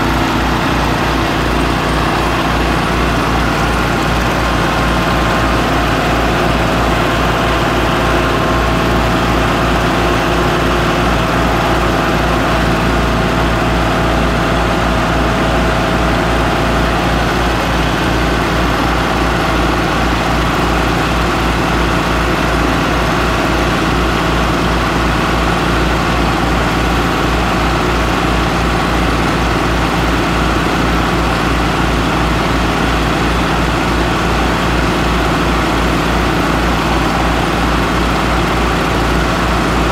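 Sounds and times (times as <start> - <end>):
small gas engine running: 0.0 - 39.9
tractor engine running: 0.0 - 39.9.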